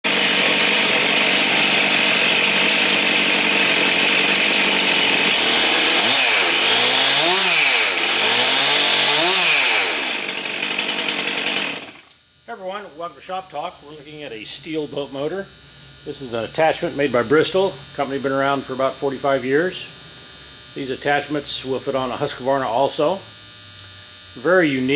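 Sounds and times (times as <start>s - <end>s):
chainsaw engine revving: 0.0s - 12.2s.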